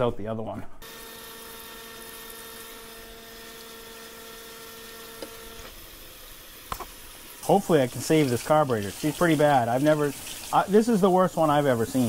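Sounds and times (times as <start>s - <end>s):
tap water running into sink: 1.9s - 5.5s, 6.7s - 12.0s.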